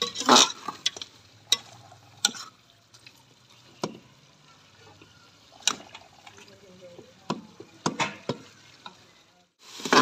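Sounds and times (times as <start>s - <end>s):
metal ladle scraping a pot: 0.0s - 2.7s, 9.7s - 10.0s
faint sizzle: 0.0s - 10.0s.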